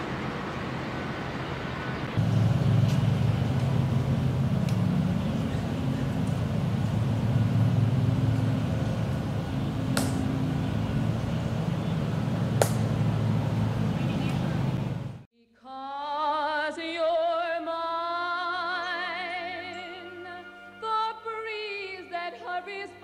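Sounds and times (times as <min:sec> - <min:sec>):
low mechanical hum: 0:00.0 - 0:15.3.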